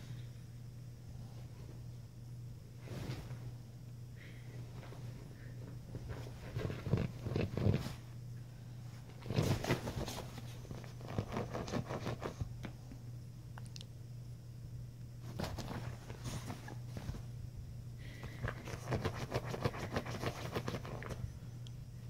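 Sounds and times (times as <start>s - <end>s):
steady low hum: 0.0s - 22.0s
puppy scratching a bedspread: 6.0s - 8.1s, 9.1s - 12.5s, 15.2s - 17.3s, 18.5s - 21.2s.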